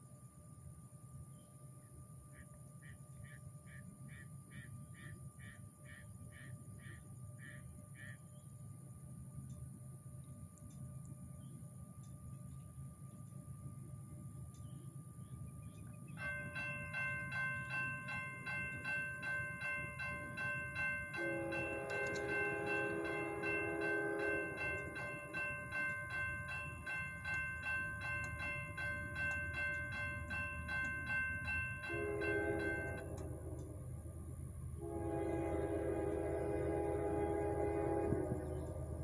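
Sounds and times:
railroad crossing bell ringing: 16.0s - 39.0s
lower-pitched crossing bell: 16.2s - 33.4s.

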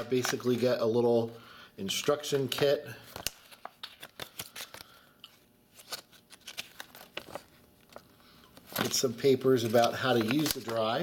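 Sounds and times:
paper crinkling and rustling: 5.7s - 11.0s.

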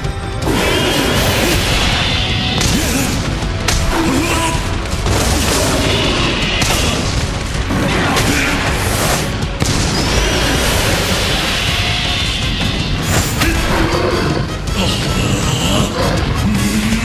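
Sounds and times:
background music: 0.0s - 17.0s
booming explosion effects: 1.4s - 14.1s.

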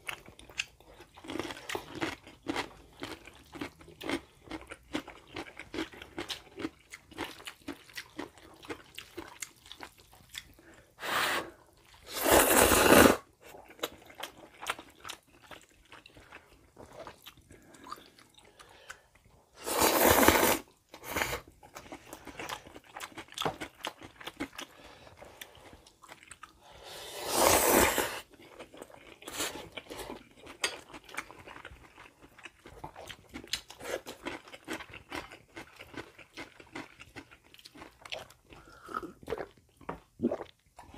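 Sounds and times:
chewing: 0.0s - 10.8s, 13.5s - 19.4s, 21.4s - 26.6s, 28.2s - 40.9s
noodle slurps: 11.0s - 13.3s, 19.6s - 21.5s, 26.9s - 28.3s.

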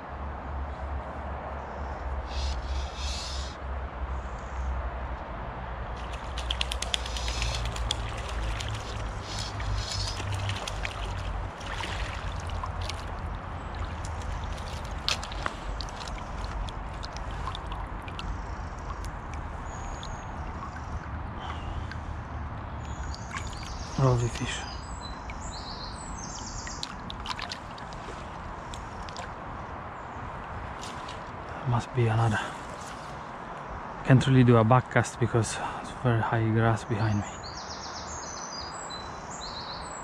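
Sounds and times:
fish splashing in water: 6.0s - 24.4s, 26.2s - 29.4s, 30.6s - 31.4s.

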